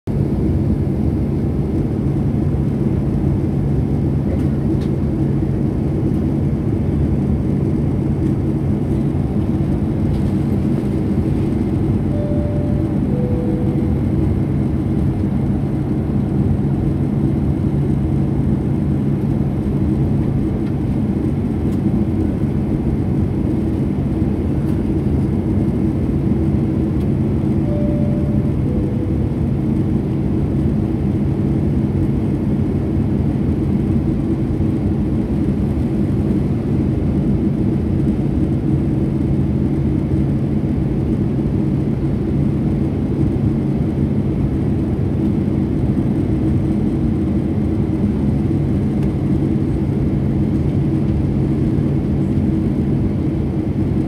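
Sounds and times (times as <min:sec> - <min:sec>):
airplane cabin engine rumble: 0:00.1 - 0:54.0
two-note cabin chime: 0:12.1 - 0:14.7, 0:27.6 - 0:30.0.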